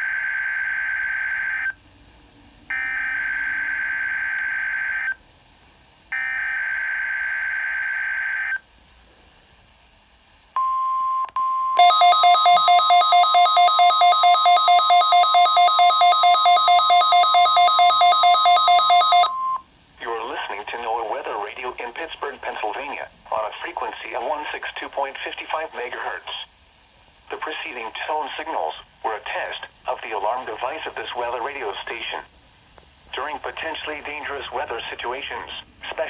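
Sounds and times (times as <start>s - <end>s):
radio alarm beeping rapidly: 11.8s - 19.6s.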